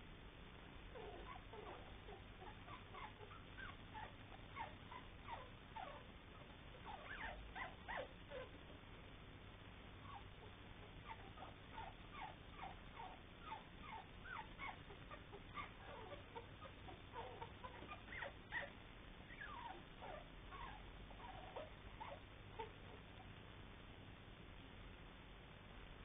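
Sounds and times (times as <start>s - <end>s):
puppies squeaking and whimpering: 6.8s - 8.5s, 11.1s - 22.8s.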